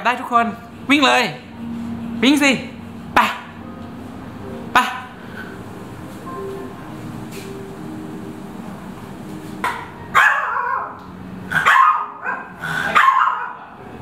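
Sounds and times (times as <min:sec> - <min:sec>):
small dog yapping: 0:10.2 - 0:13.6.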